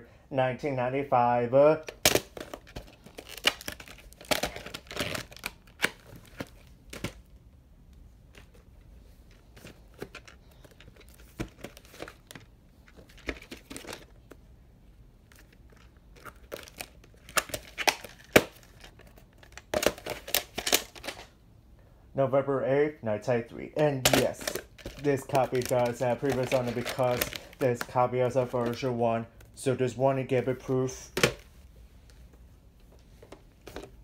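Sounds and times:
plastic case clicks and rustles: 0:01.8 - 0:07.3, 0:09.3 - 0:14.4, 0:15.3 - 0:21.3, 0:24.0 - 0:28.9.

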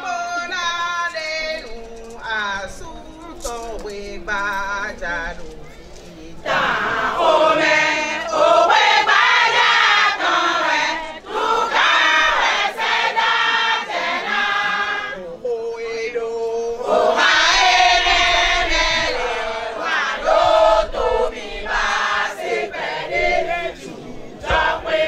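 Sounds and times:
women singing chant-like song: 0:06.4 - 0:25.0.

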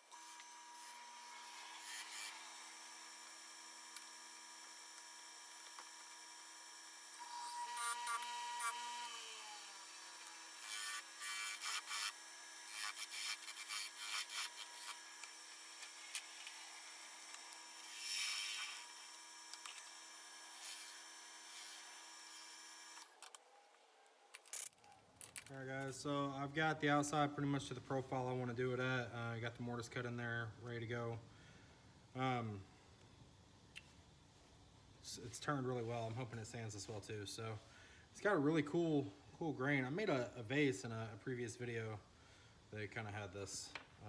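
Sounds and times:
wood lathe running: 0:00.1 - 0:23.1.

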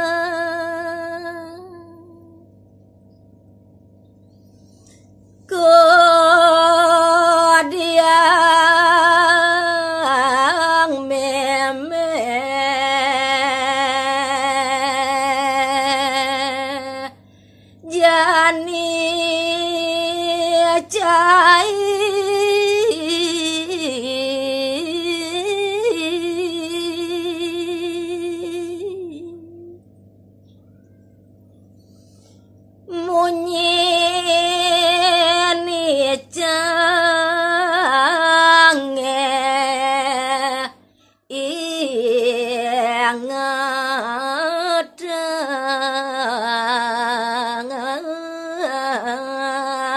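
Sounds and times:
woman singing unaccompanied: 0:00.0 - 0:02.6, 0:05.4 - 0:29.9, 0:32.9 - 0:49.9.

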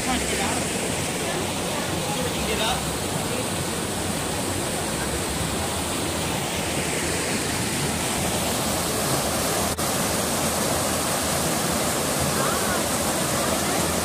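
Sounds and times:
waterfall cascading over rock: 0:00.0 - 0:14.0.

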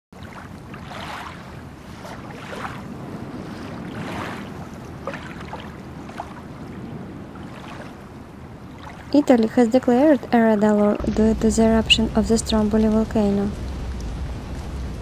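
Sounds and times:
water slapping against a boat: 0:00.1 - 0:15.0
wind on microphone: 0:00.2 - 0:15.0
low steady rumble: 0:05.7 - 0:15.0.

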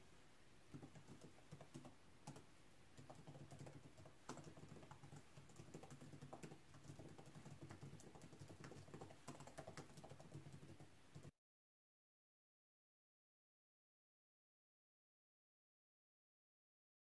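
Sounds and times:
typing on laptop keyboard: 0:00.7 - 0:11.3.

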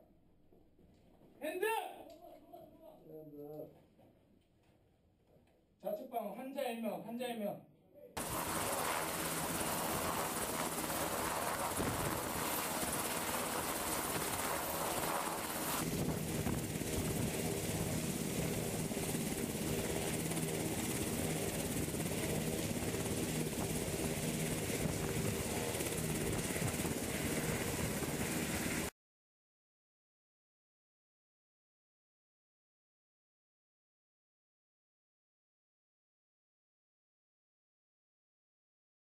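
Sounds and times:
helicopter rotor and turbine: 0:08.2 - 0:28.9.

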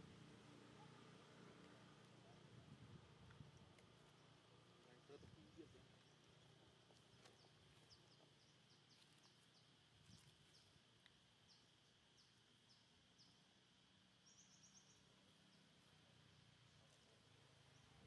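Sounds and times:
small bird chirping: 0:06.0 - 0:10.8, 0:14.2 - 0:17.1.

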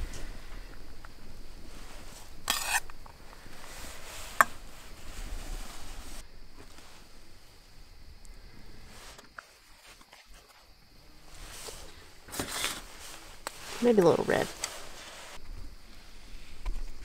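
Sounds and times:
metal spoon scraping bowl: 0:02.5 - 0:02.9.

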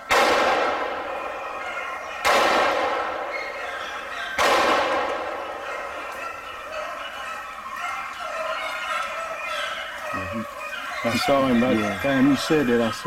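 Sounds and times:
shotgun shots with echo: 0:00.0 - 0:01.6, 0:02.2 - 0:05.6.

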